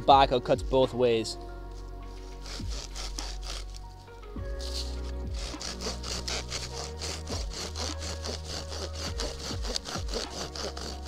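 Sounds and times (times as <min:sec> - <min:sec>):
hand saw cutting log: 0:02.1 - 0:03.9, 0:04.6 - 0:11.0.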